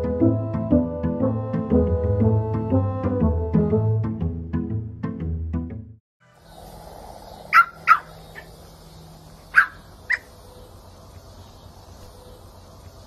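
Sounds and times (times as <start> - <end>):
puppy yapping: 7.5 - 8.5, 9.5 - 10.3.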